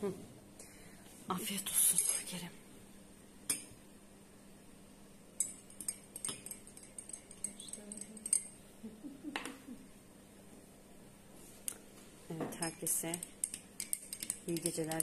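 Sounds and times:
teaspoon clinking against cups: 5.4s - 8.6s, 12.7s - 15.0s.

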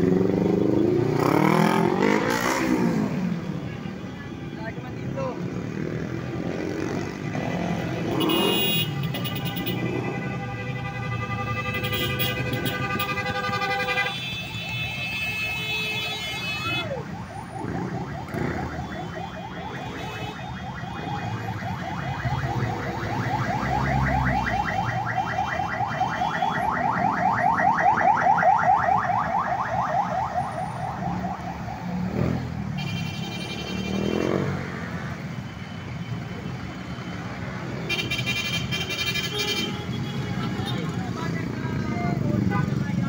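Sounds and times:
vehicle engines passing: 0.0s - 4.0s, 4.6s - 14.5s, 16.7s - 43.0s
electronic siren warbling: 16.9s - 32.0s.

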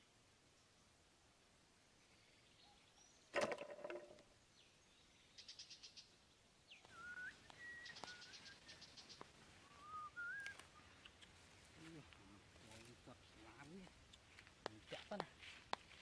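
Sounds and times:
birds chirping and whistling: 6.7s - 11.3s.

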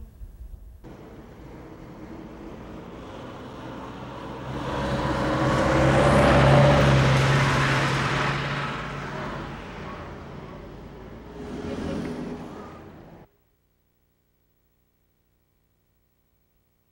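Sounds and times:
bus driving past: 0.8s - 13.3s.

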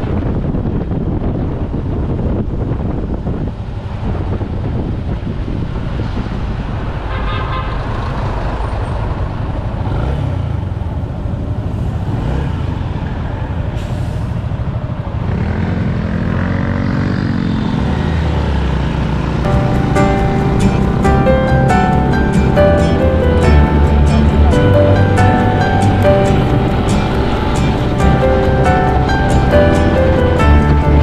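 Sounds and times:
scooter engine and road rumble: 0.0s - 31.0s
engine pitch rising and falling: 19.5s - 31.0s.

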